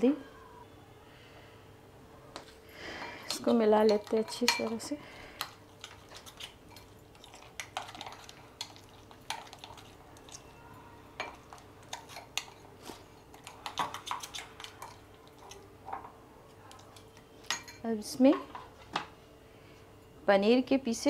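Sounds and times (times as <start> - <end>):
spoon stirring in bowl: 2.4 - 10.6, 11.2 - 16.1.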